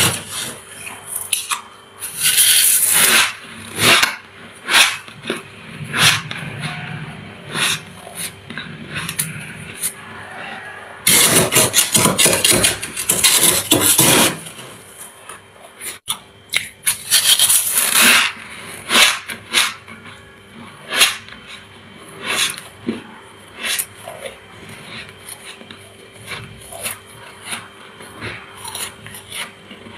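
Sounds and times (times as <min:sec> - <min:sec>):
metal spoon scraping frost: 0:00.0 - 0:16.1, 0:16.8 - 0:22.8, 0:23.4 - 0:29.9
frost crunching when chewed: 0:15.0 - 0:29.9.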